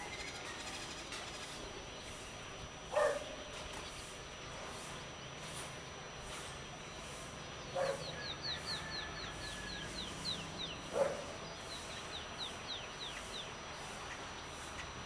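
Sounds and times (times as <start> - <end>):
dog barking: 2.9 - 3.3, 7.7 - 8.1, 10.9 - 11.4.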